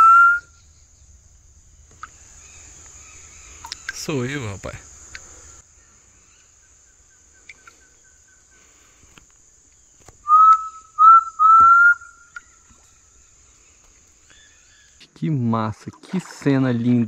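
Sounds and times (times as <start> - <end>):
person whistling bird call: 0.0 - 0.5, 10.2 - 12.5.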